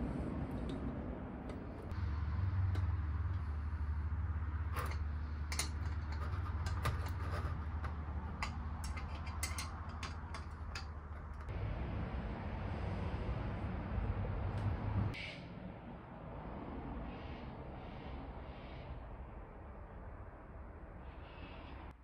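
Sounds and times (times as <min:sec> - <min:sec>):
metal mechanism clicking: 0:04.6 - 0:11.5.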